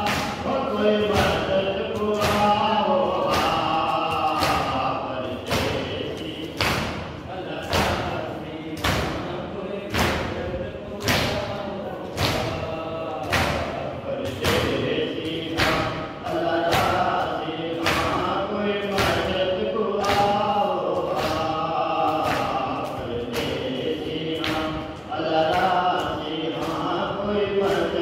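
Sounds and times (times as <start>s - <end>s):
hands beating chests: 0.0s - 8.2s, 20.0s - 26.9s
people chanting in unison: 0.0s - 28.0s.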